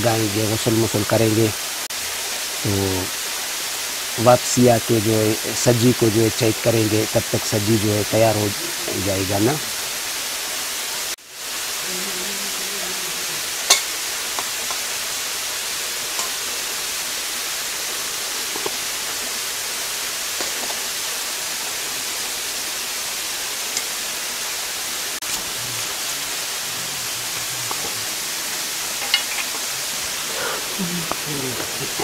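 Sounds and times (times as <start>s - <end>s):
running water rushing: 0.0s - 32.0s.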